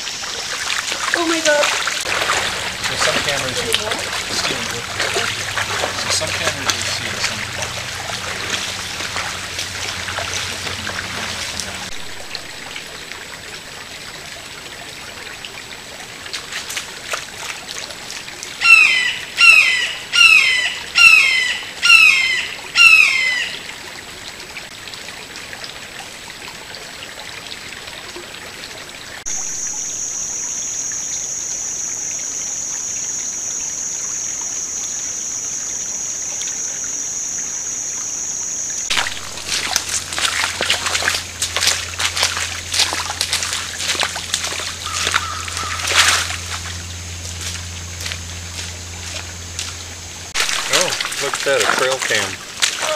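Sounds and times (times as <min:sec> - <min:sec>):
water trickling: 0:00.0 - 0:30.5, 0:38.8 - 0:52.9
footsteps splashing through water: 0:00.2 - 0:12.9, 0:16.3 - 0:18.2, 0:38.9 - 0:52.9
bird calling falling note: 0:44.8 - 0:46.3.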